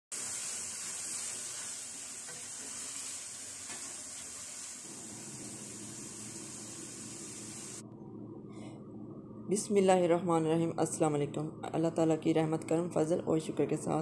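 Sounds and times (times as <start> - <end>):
frying hiss: 0.1 - 7.8.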